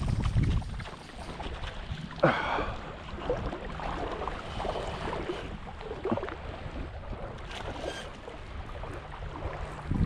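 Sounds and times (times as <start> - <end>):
wind on the microphone: 0.0 - 2.1, 8.6 - 10.0
sea water sloshing and lapping: 0.0 - 10.0.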